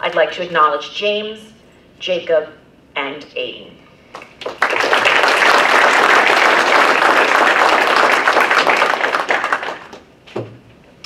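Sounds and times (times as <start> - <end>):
audience applauding: 4.2 - 10.0.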